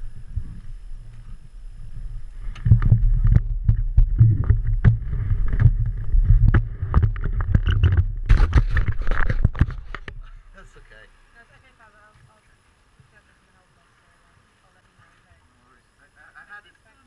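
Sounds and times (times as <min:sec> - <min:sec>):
steady low rumble: 0:00.0 - 0:15.6
camera handling rustles and knocks: 0:04.3 - 0:10.2.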